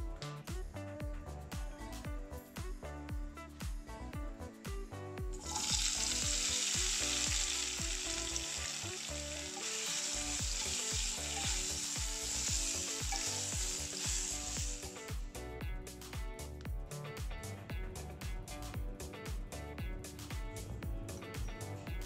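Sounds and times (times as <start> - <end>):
background music with steady beat: 0.0 - 22.0
tofu sizzling in hot oil: 5.4 - 15.2.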